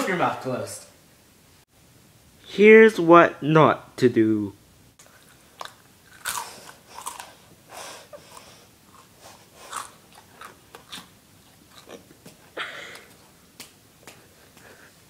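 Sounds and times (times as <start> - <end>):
person chewing noisily: 5.0 - 13.4.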